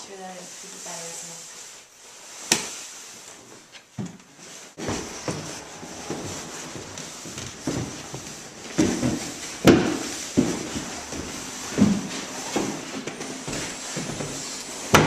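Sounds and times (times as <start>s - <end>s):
footsteps on wooden stairs: 4.8s - 15.0s.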